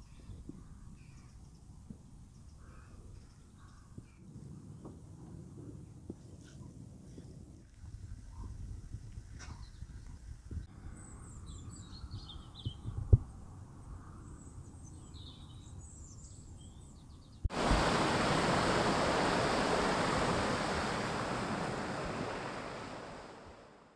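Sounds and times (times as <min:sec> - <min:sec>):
rushing wind and water: 0:17.5 - 0:23.9.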